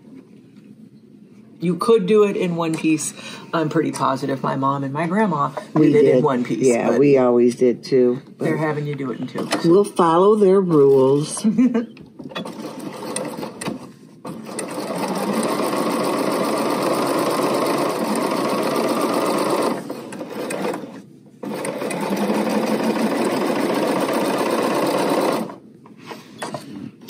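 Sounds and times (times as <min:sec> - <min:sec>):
sewing machine stitching: 0:12.2 - 0:25.6.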